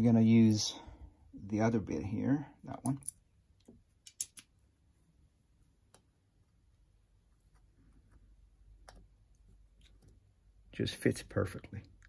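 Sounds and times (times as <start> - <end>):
small metal tools clicking: 4.0 - 4.5.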